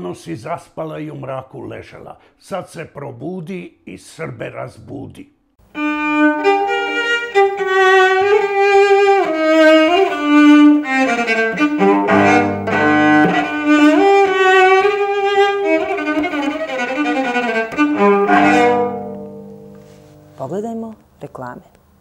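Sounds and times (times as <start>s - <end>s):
bowed cello melody: 5.7s - 21.0s.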